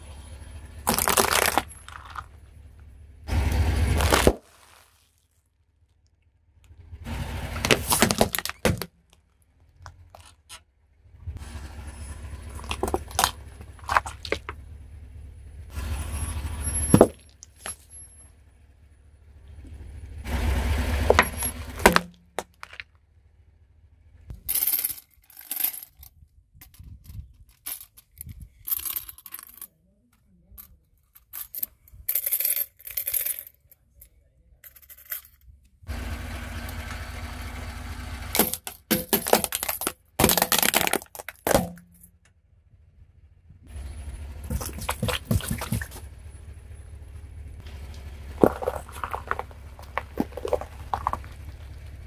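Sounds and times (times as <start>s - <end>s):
plastic cracking: 0.9s - 2.2s, 7.6s - 9.2s, 38.4s - 41.8s
sharp cracks: 0.9s - 2.4s, 3.8s - 4.9s
tyre rumble: 3.3s - 5.0s, 7.4s - 8.9s, 11.8s - 14.7s, 20.2s - 22.8s, 44.4s - 46.2s, 47.6s - 52.0s.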